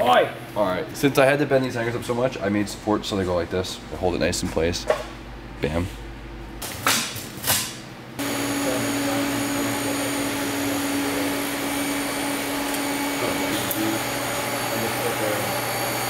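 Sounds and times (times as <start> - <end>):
welding arc hissing: 8.2 - 16.0.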